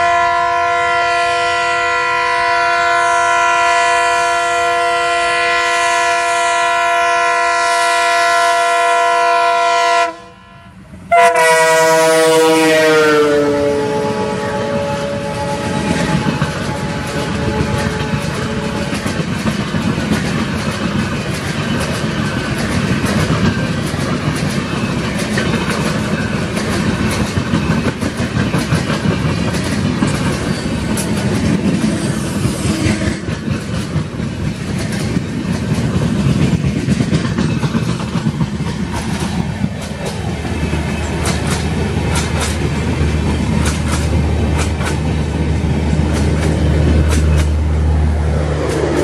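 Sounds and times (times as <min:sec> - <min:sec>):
train wheels rumbling on rails: 0:00.0 - 0:49.0
wheels clacking over rail joints: 0:13.7 - 0:49.0.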